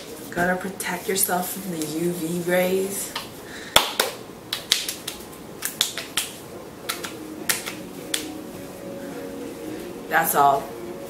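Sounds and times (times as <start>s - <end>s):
hands slapping skin: 3.2s - 8.3s.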